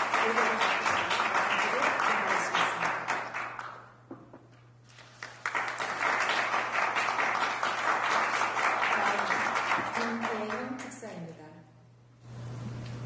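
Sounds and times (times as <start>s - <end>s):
audience clapping: 0.0s - 4.1s, 4.9s - 11.0s.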